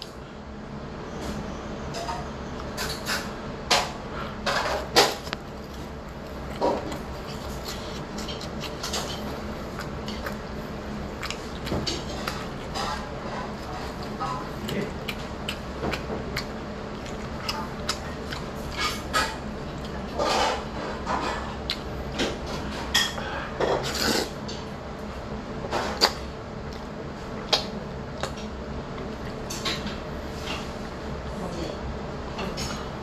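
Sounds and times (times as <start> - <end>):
chewing: 4.2 - 24.7, 25.8 - 30.7
slurping noodles: 23.8 - 24.4.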